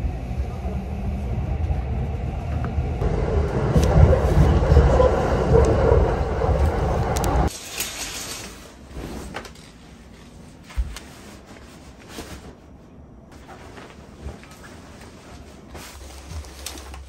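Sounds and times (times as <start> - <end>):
loud background rumble: 0.0 - 7.5
fabric rustling: 8.4 - 17.0.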